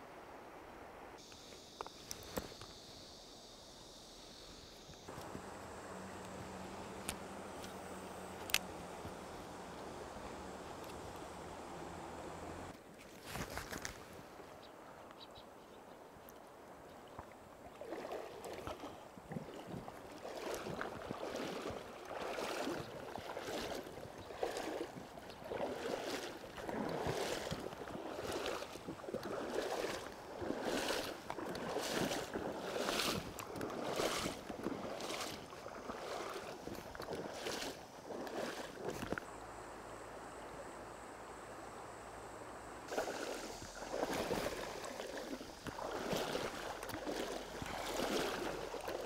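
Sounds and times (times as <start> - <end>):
faint steady hiss: 0.0 - 17.9, 18.8 - 49.0
wading through shallow water: 4.8 - 14.4, 16.0 - 39.3, 42.9 - 49.0.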